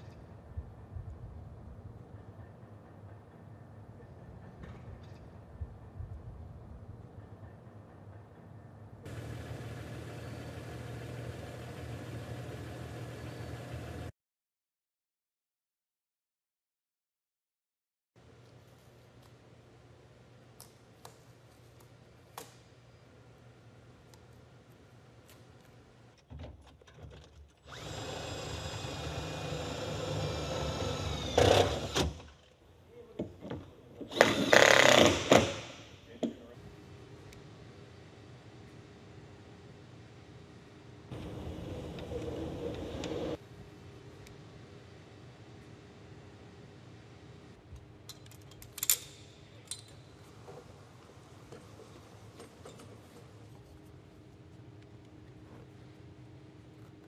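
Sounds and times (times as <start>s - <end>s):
cordless drill spinning: 27.7s - 32.1s, 34.1s - 35.3s
light metallic clicks and clinks: 48.0s - 50.1s.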